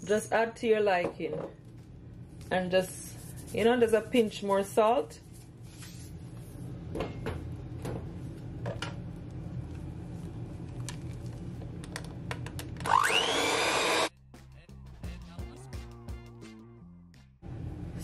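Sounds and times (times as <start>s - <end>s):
electric hand mixer whipping: 12.9s - 14.1s.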